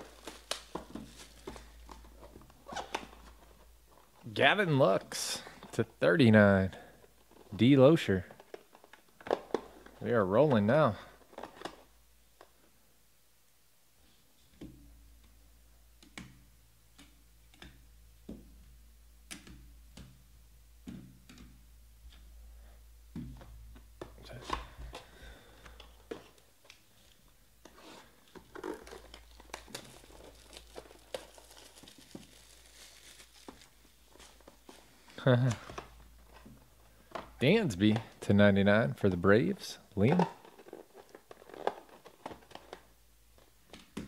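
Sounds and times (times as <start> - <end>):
cards tapping: 0.0 - 3.1
shrink wrap crinkling and tearing: 0.0 - 4.2, 26.2 - 35.9, 40.0 - 43.8.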